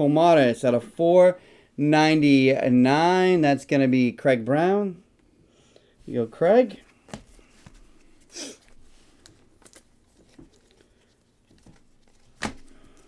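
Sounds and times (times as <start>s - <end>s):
cards rustling and clicking: 6.8s - 13.0s.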